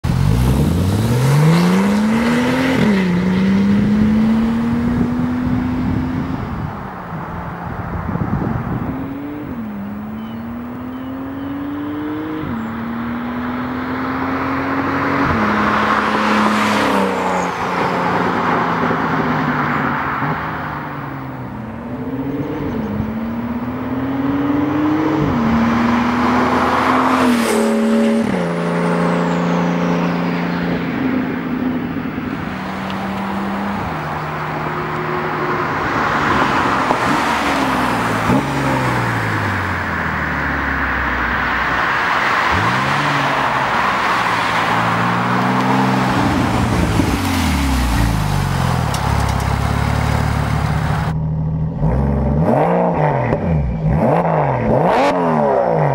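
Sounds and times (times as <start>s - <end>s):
car engine accelerating hard: 0.0s - 6.3s, 21.8s - 31.1s, 32.2s - 55.9s.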